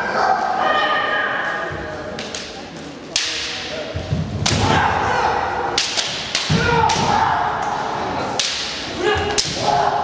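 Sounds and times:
bamboo swords clacking: 2.2 - 4.8, 5.6 - 10.0
fighters shouting: 4.5 - 5.7, 6.4 - 7.7, 8.9 - 10.0.

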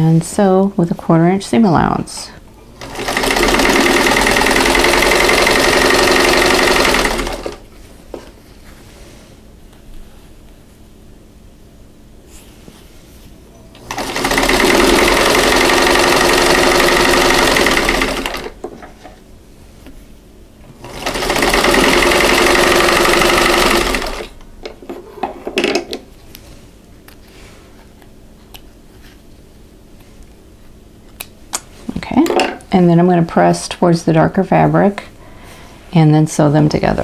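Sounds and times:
sewing machine stitching: 2.8 - 7.6, 13.8 - 18.6, 20.8 - 24.4.

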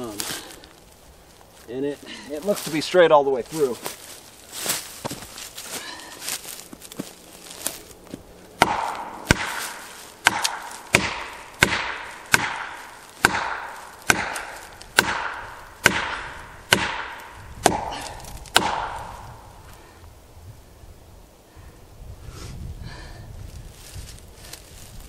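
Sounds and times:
axe striking metal wedge: 8.6 - 19.0.

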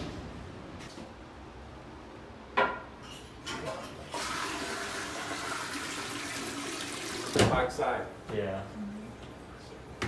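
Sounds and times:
tap water running: 4.1 - 7.6.

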